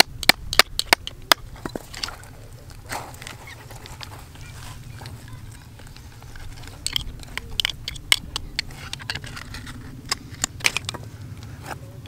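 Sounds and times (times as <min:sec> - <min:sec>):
oyster shells clicking and scraping: 0:00.0 - 0:11.8
low steady rumble: 0:00.0 - 0:12.0.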